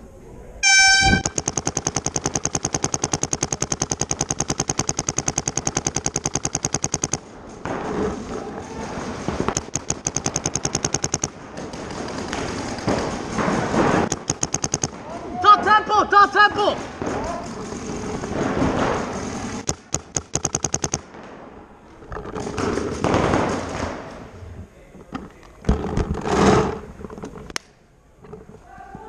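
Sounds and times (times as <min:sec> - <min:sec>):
horn blast: 0:00.6 - 0:01.3
paintball marker firing rapidly: 0:01.1 - 0:07.2, 0:09.3 - 0:15.0, 0:17.0 - 0:21.1.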